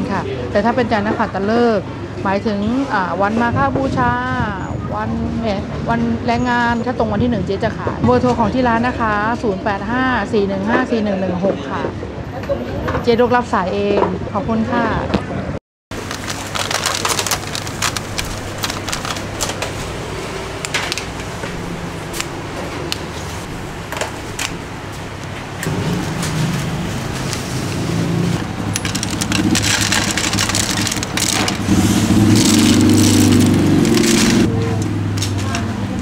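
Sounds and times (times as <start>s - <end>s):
road traffic hum: 0.0s - 10.2s, 11.5s - 36.0s
plastic containers rustling and clicking: 16.0s - 21.3s, 28.4s - 35.6s.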